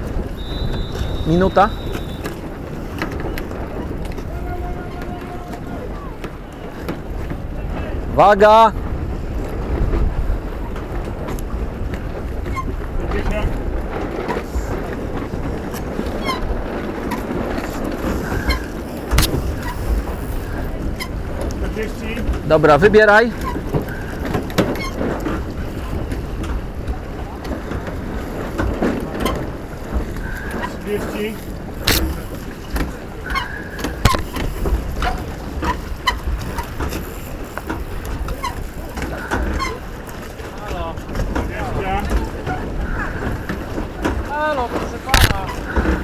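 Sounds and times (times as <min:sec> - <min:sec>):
water splashing along hull: 0:00.0 - 0:46.0
wind buffeting microphone: 0:00.0 - 0:46.0
short high squeaks: 0:00.3 - 0:02.4, 0:18.2 - 0:19.9
short squeaks: 0:00.3 - 0:02.4, 0:16.1 - 0:17.3, 0:18.1 - 0:21.2, 0:31.8 - 0:37.2.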